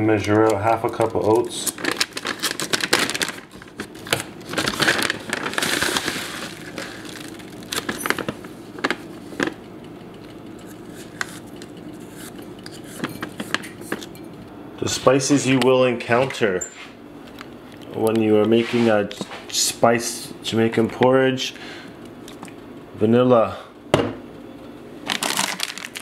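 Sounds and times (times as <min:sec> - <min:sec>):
plastic bag crinkling: 0:00.7 - 0:09.5, 0:25.0 - 0:26.0.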